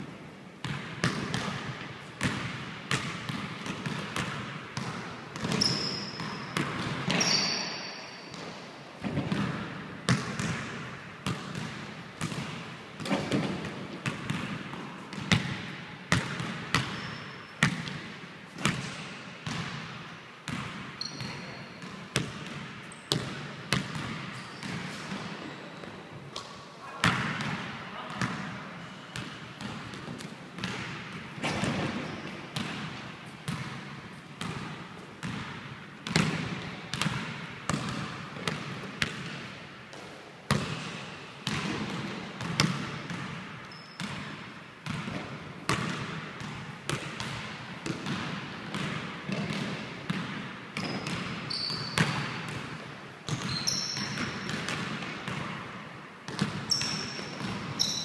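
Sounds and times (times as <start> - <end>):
sneaker squeaks on wood: 5.5 - 8.3, 21.0 - 21.6, 50.8 - 52.2, 53.4 - 54.4, 56.7 - 57.2, 57.8 - 58.0.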